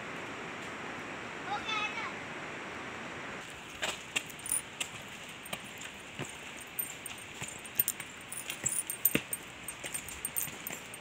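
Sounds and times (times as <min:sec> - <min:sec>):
faint metallic jingle: 0:04.2 - 0:11.0.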